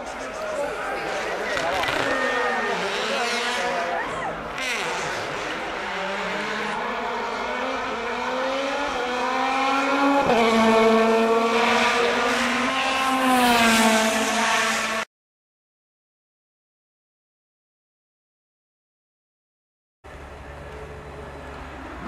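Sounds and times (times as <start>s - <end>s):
rally car engine revving: 1.0s - 15.0s.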